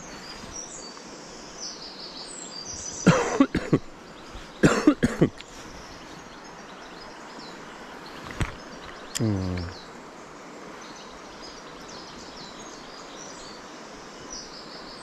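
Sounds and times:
birds chirping: 0.0s - 15.0s
person coughing: 3.1s - 3.8s, 4.6s - 5.3s.

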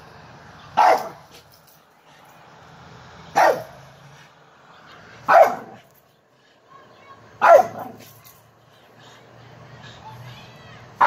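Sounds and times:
small dog barking: 0.8s - 1.3s, 3.4s - 3.8s, 5.3s - 5.8s, 7.4s - 8.1s.

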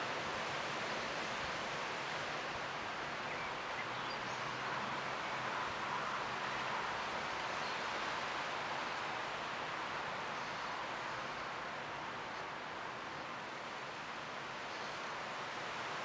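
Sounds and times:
leaves rustling in wind: 0.0s - 16.0s.

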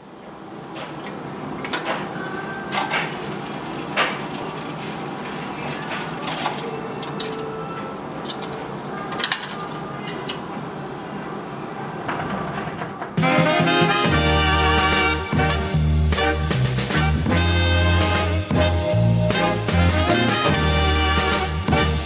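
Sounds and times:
mechanism clicks and clunks: 0.8s - 2.1s, 2.7s - 7.6s, 8.2s - 10.6s.

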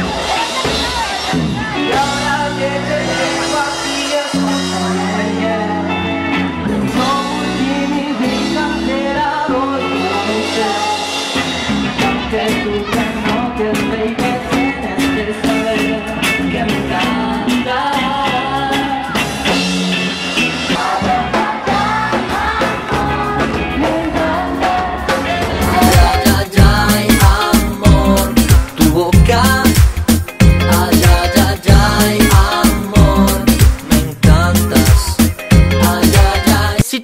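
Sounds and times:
fast drum beat: 0.0s - 2.6s, 19.0s - 36.8s
latin pop song with singing: 0.0s - 37.0s.

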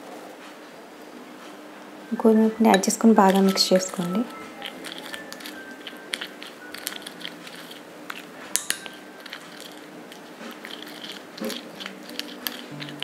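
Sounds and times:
spoon clicking against bowl: 2.7s - 9.8s, 10.6s - 13.0s
sticky paste squelching: 2.8s - 13.0s.

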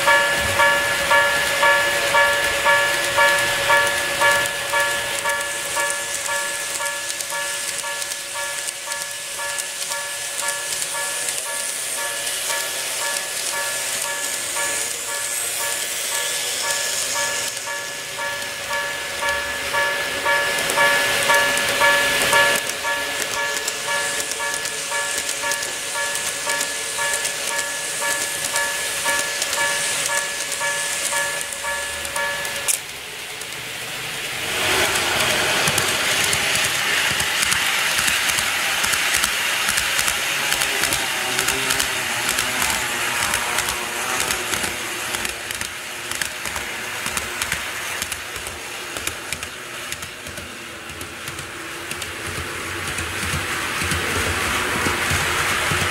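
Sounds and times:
electronic warning bell ringing: 0.0s - 32.8s
model trains rolling on track: 0.0s - 55.9s.

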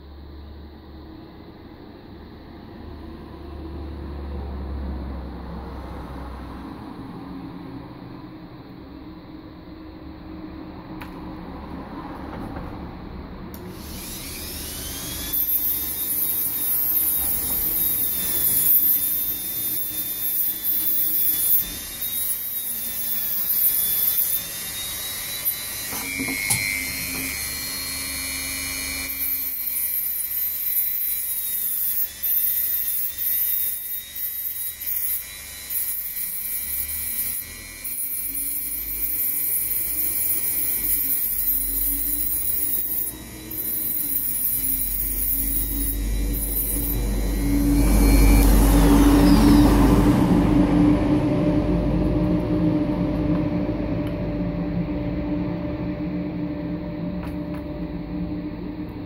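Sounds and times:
rotary tool grinding metal: 13.6s - 50.1s.

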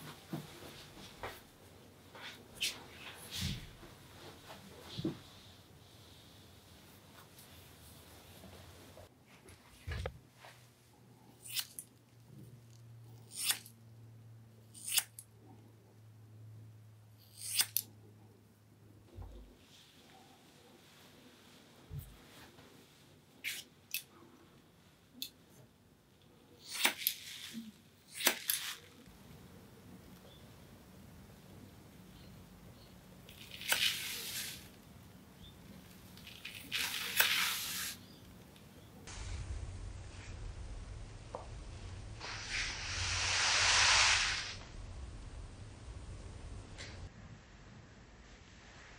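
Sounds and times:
scissors cutting hair: 11.4s - 11.9s, 13.2s - 13.7s, 14.7s - 15.2s, 17.2s - 17.9s, 26.7s - 27.5s
shears snipping hair: 11.4s - 11.9s, 13.2s - 13.7s, 14.7s - 15.2s, 17.2s - 17.9s, 26.6s - 29.0s, 33.3s - 34.7s, 36.2s - 38.0s.

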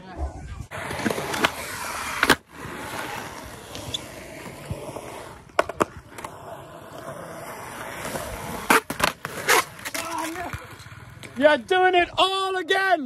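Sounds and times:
skateboard wheels rolling on concrete: 0.0s - 13.0s
skateboard clacks: 3.7s - 6.4s, 8.0s - 11.4s.

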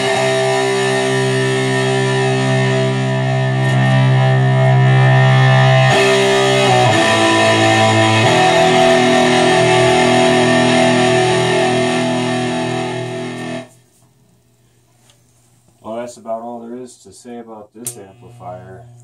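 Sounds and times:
electric guitar chords ringing: 0.0s - 13.8s.

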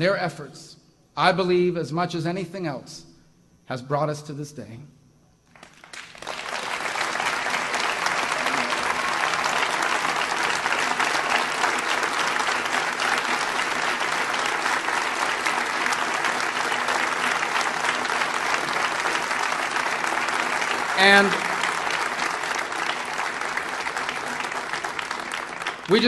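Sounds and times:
crowd applauding: 5.5s - 26.0s.

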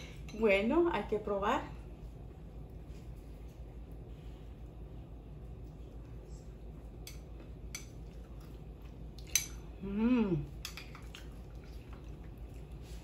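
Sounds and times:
person humming with enjoyment: 9.8s - 10.5s.

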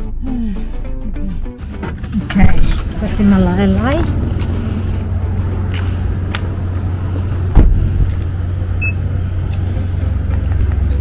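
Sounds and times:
low vehicle rumble: 0.0s - 11.0s
loud sudden thump: 7.5s - 7.9s.

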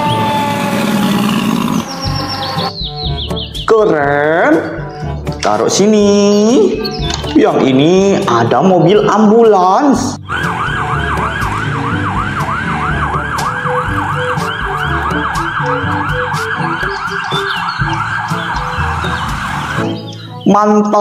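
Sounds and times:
toy electronic siren wailing: 0.0s - 2.7s, 10.3s - 20.1s.

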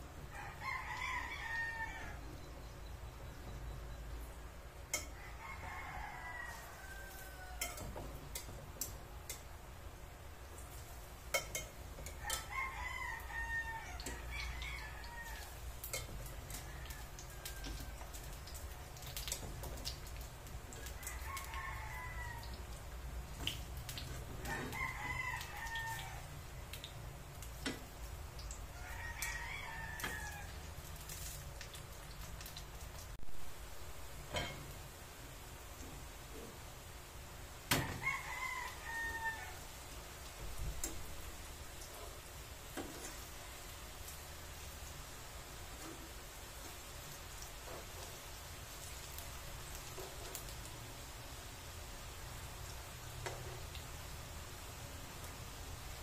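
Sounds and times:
rooster crowing: 0.3s - 2.4s, 5.0s - 8.0s, 12.1s - 18.4s, 20.8s - 22.8s, 24.2s - 26.5s, 28.7s - 30.7s, 37.7s - 39.9s
metal tongs clicking on pan: 7.6s - 9.5s, 11.3s - 12.5s, 15.8s - 17.0s.

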